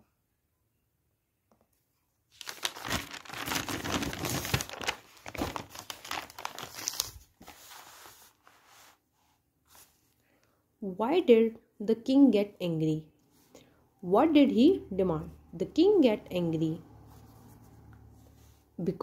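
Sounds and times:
paper pages rustling: 2.3 - 9.0.

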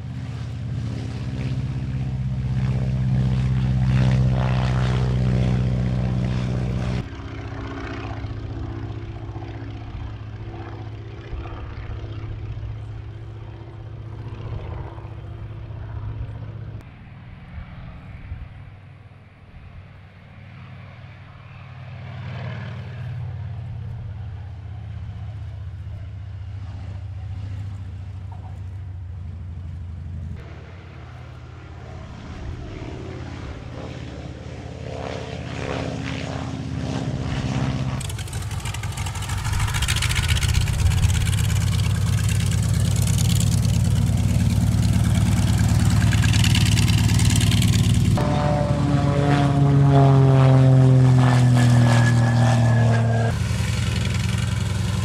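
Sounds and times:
propeller aircraft engines droning: 0.0 - 55.0.

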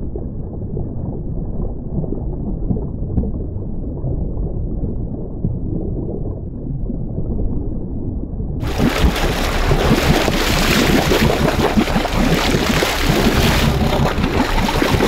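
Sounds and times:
muffled underwater sound: 0.0 - 15.0
seawater rushing and splashing: 8.6 - 15.0
wind buffeting microphone: 8.6 - 15.0.

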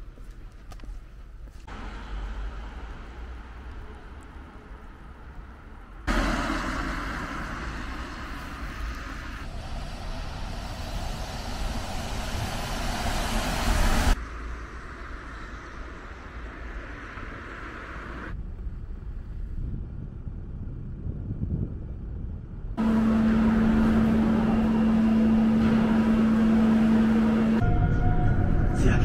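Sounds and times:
outdoor background: 0.0 - 29.0
traffic on wet street: 1.6 - 18.4, 22.8 - 27.6.

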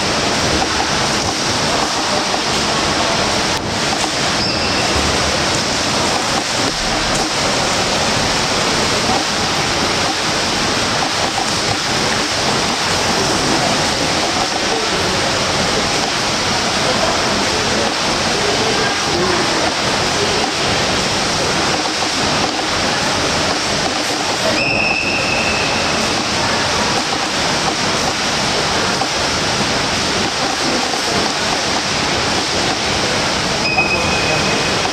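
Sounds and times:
pool water churning: 0.0 - 34.9
brief high tone: 33.6 - 34.8.

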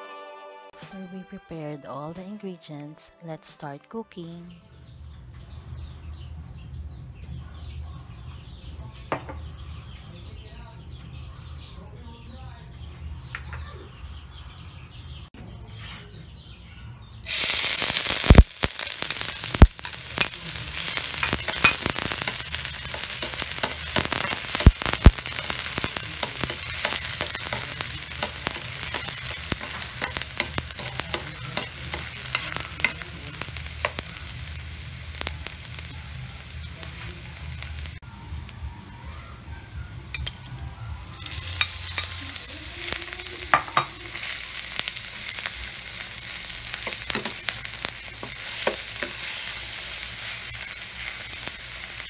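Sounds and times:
onions sizzling in hot oil: 17.2 - 52.0.

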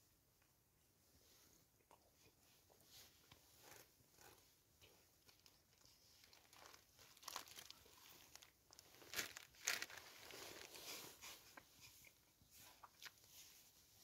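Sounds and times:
plastic packaging crinkling: 5.3 - 11.0.

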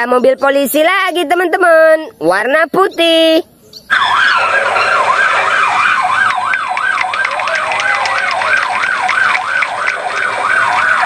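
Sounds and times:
police siren yelping: 3.9 - 11.0.

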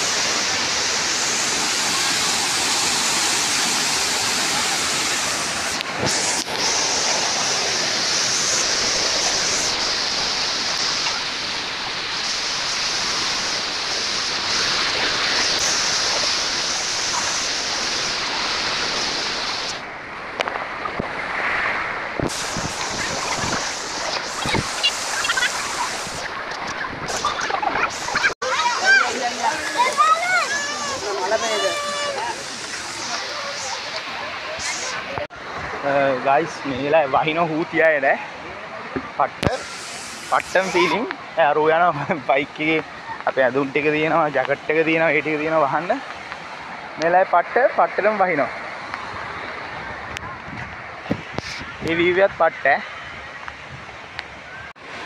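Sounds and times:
stream and waterfall rushing: 0.0 - 55.0.

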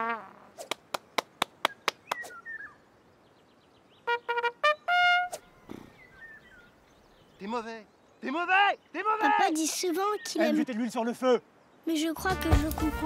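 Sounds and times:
trumpet notes: 4.0 - 5.6.

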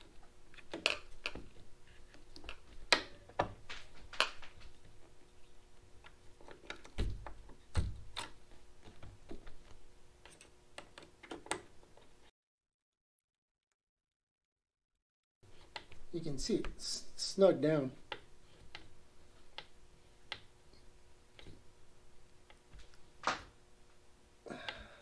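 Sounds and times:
faint steady hum: 15.4 - 25.0.

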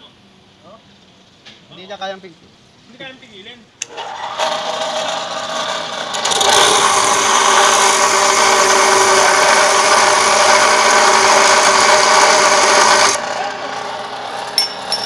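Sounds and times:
cut-off saw grinding metal: 3.8 - 15.0
spinning disc whine: 3.9 - 15.0.

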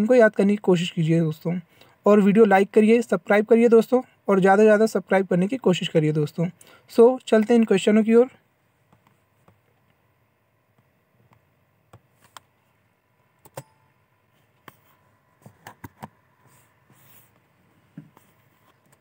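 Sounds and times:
faint steady hum: 0.0 - 19.0
faint clicks and taps: 8.9 - 10.0.

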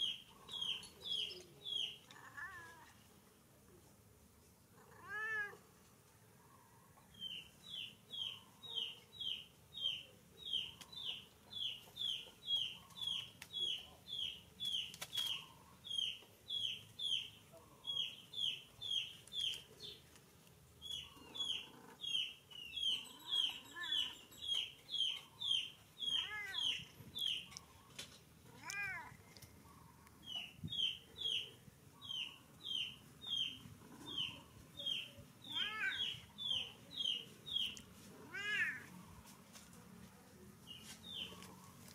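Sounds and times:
cat meowing: 2.1 - 3.0, 4.8 - 5.6, 26.0 - 26.8, 28.5 - 29.2, 35.5 - 36.1, 38.2 - 38.9.

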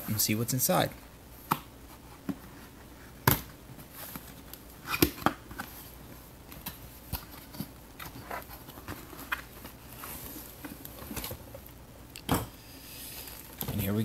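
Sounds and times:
cardboard rustles: 6.6 - 11.6.

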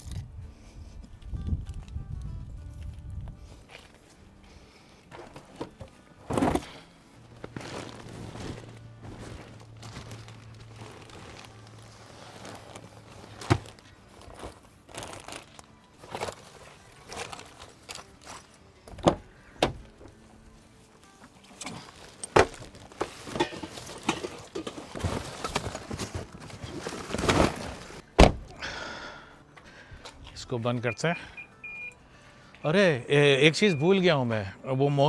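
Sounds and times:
light background music: 0.0 - 35.0
bags thudding in cargo area: 5.1 - 17.6, 21.8 - 28.5
sharp thunk: 28.2 - 28.5.

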